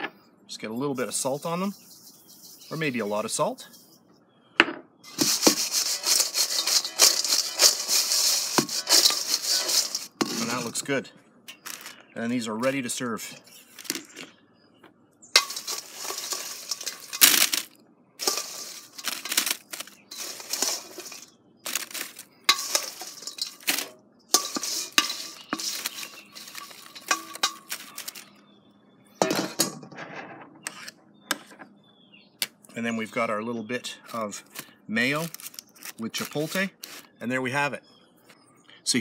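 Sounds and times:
metal tongs scraping steel bowl: 5.1s - 10.8s, 15.4s - 28.4s.

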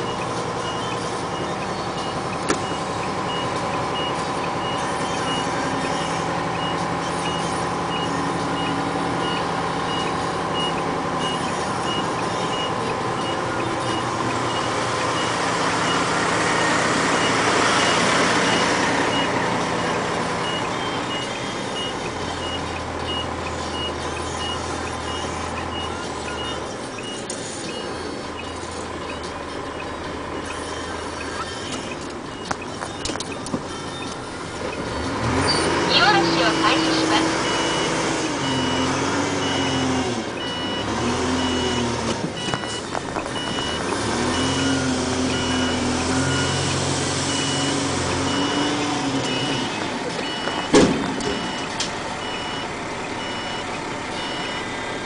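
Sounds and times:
reversing alarm beeps: 0.0s - 54.8s
deep engine drone: 0.0s - 55.0s
diesel engines running: 0.0s - 55.0s.

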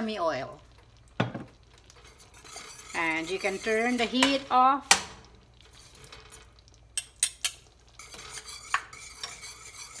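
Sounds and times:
whisk stirring sauce in saucepan: 1.8s - 4.7s, 5.6s - 6.8s, 7.6s - 10.0s.

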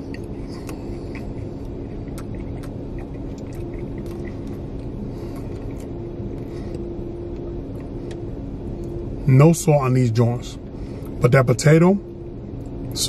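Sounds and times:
person chewing fries: 0.0s - 9.0s
car engine rumble inside cabin: 0.0s - 13.0s.

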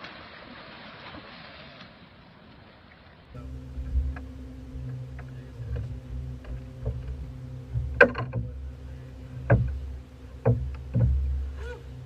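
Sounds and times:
boat engine hum: 3.1s - 12.0s
knocks on boat deck: 3.4s - 12.0s.

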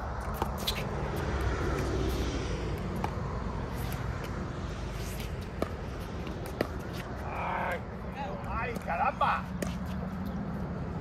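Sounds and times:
paddles hitting ball: 5.5s - 7.2s.

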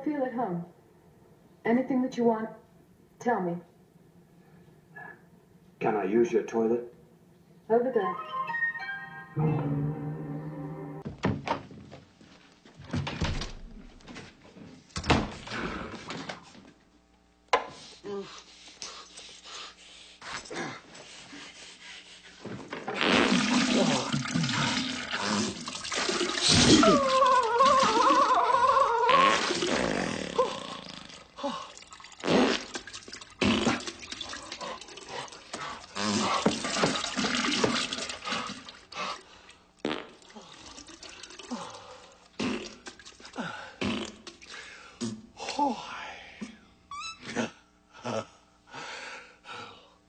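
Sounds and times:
door opening and shutting: 11.0s - 11.9s, 12.8s - 13.8s, 15.0s - 15.5s, 46.9s - 47.4s
knocks and thumps: 11.0s - 12.0s
comedic fart and splatter effects: 22.8s - 28.4s, 29.1s - 31.4s, 32.0s - 34.8s, 35.9s - 38.7s, 39.8s - 41.5s, 42.4s - 45.2s.

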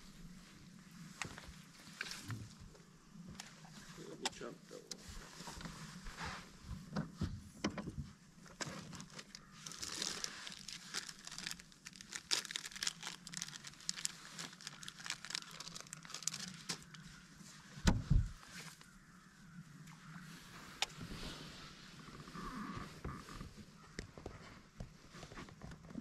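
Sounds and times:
crinkling and rustling: 1.0s - 17.2s, 20.6s - 26.0s
dull low thump: 17.8s - 18.4s.

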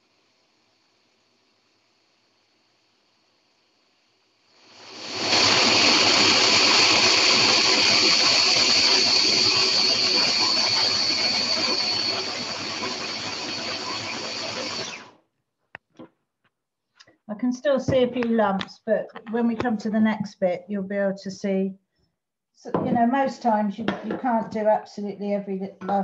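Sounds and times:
food processor whirring: 4.8s - 15.2s.

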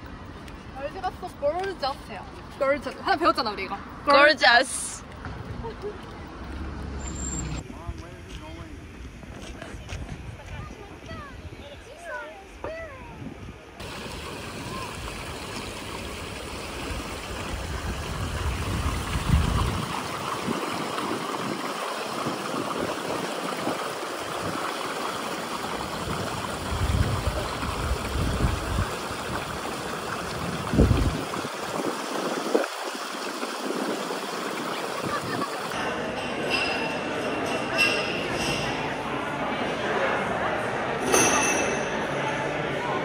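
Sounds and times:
wind gusts on microphone: 7.5s - 24.8s, 25.6s - 35.7s
shallow water running and rippling: 13.8s - 35.8s.

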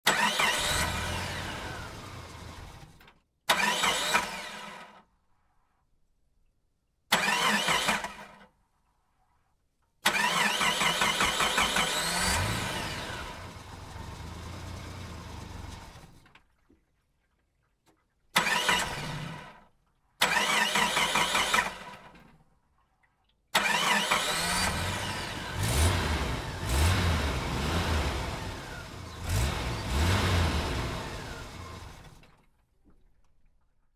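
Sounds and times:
engine starting and revving: 0.0s - 5.0s, 7.1s - 8.4s, 10.0s - 16.4s, 18.4s - 19.6s, 20.2s - 22.2s, 23.6s - 32.4s.

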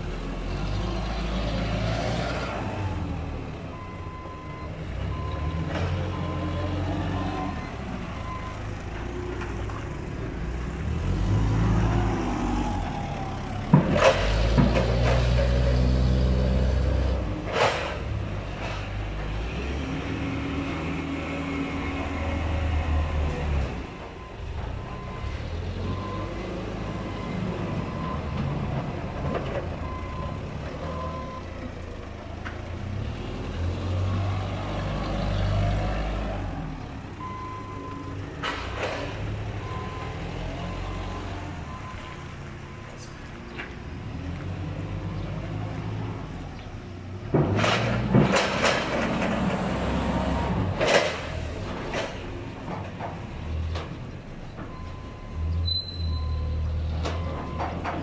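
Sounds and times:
reversing beeper: 54.8s - 57.8s.

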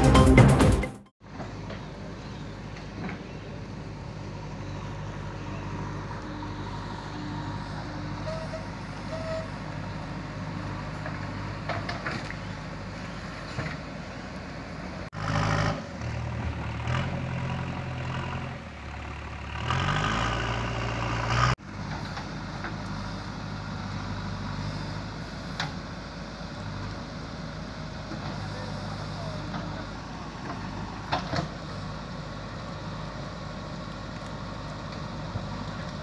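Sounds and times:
diesel engine revving: 3.5s - 36.0s.

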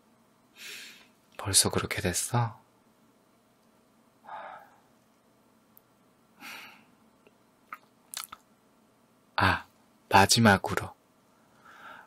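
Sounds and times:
man breathing softly: 0.5s - 1.2s, 4.2s - 4.9s, 6.4s - 7.0s, 11.4s - 12.0s
wet mouth clicks and lip smacks: 7.7s - 8.5s.

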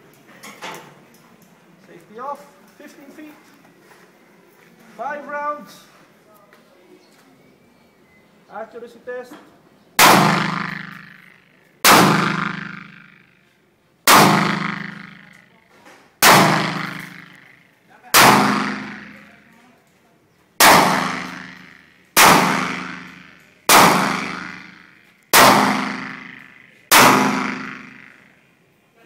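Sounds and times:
pistol shots echoing: 10.0s - 13.4s, 14.1s - 15.5s, 16.2s - 19.5s, 20.6s - 28.4s.

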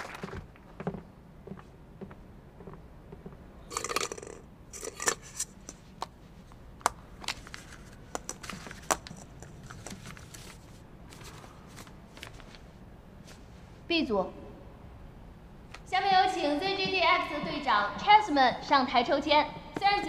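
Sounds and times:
hand rummaging among plastic balls: 3.7s - 6.0s, 7.2s - 11.9s
paper slip unfolding rustle: 7.2s - 13.5s.

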